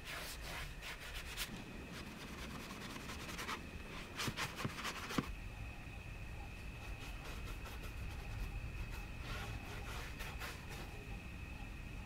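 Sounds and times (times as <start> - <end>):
brush rubbing on paper: 0.0 - 5.3, 6.8 - 11.0.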